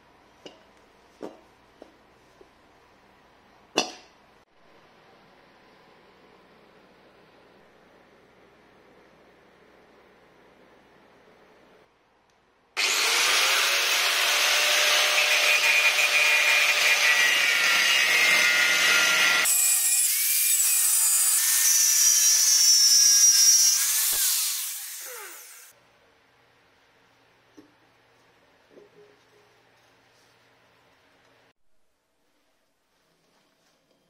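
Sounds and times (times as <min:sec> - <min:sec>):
angle grinder cutting steel: 0:12.8 - 0:25.7.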